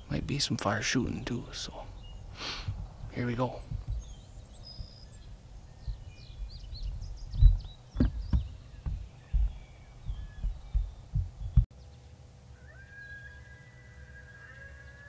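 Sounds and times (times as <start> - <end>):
bird chirps: 1.0 - 13.4
low thumps on microphone: 2.6 - 11.7
electronic coyote howl call: 12.5 - 15.0.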